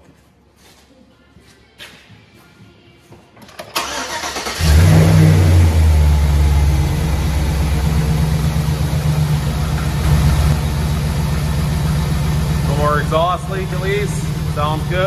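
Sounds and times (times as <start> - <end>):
car engine starting and idling: 3.5 - 15.0.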